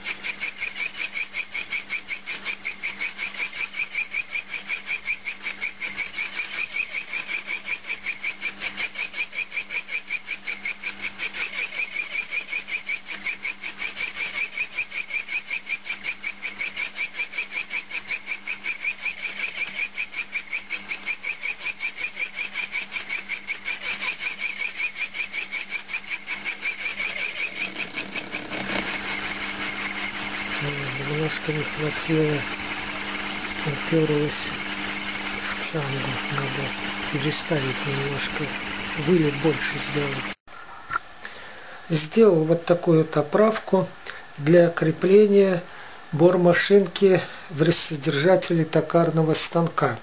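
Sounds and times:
saw cutting with rhythmic chirping: 0.0 - 40.4
milling machine motor hum: 26.2 - 40.4.

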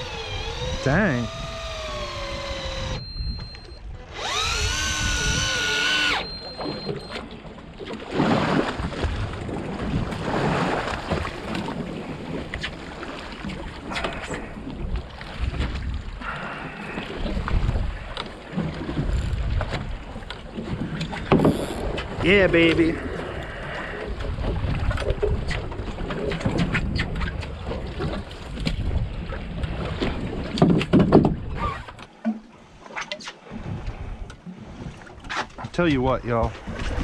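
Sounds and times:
motor-driven fishing reel whining: 0.0 - 7.2, 21.5 - 21.8
water: 0.0 - 37.0
wind: 0.0 - 37.0
knocks and handling on boat: 5.0 - 23.4, 24.1 - 37.0.

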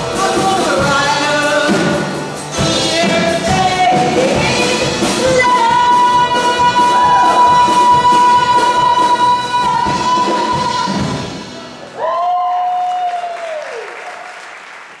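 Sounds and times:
acoustic band playing: 0.0 - 12.0
woman singing: 0.1 - 11.4.

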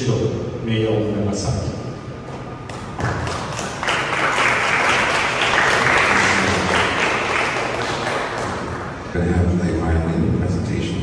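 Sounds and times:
audience applauding: 3.0 - 9.0.

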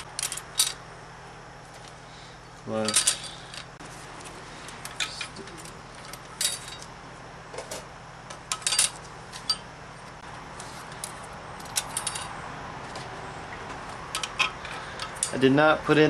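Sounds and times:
metal clutch plates clinking: 0.0 - 0.8, 2.7 - 3.7, 4.7 - 7.0, 8.5 - 9.7, 10.6 - 12.4, 14.1 - 15.5.

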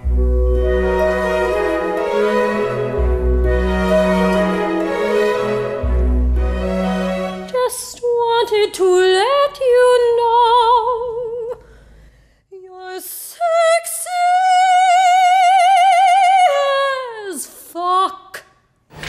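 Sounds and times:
woman singing opera: 7.5 - 11.6, 12.5 - 18.4.

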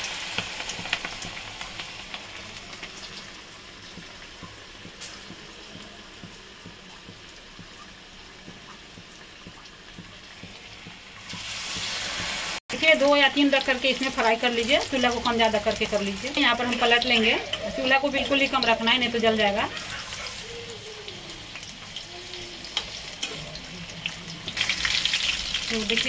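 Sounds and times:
oil sizzling with crackling pops: 0.0 - 26.0.

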